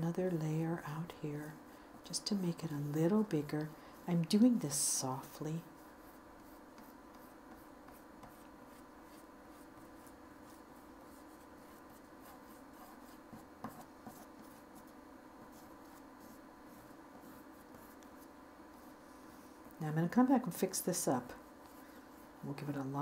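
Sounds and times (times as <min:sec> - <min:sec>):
oil pastel scratching paper: 0:04.2 - 0:19.5.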